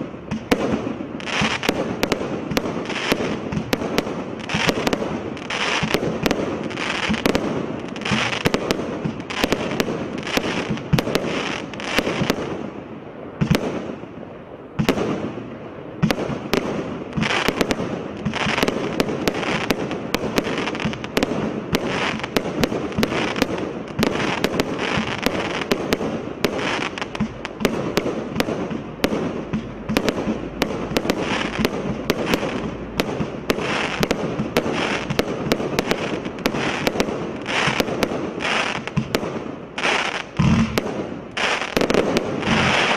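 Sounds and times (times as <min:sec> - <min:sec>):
firework reports: 0:00.0 - 0:42.9.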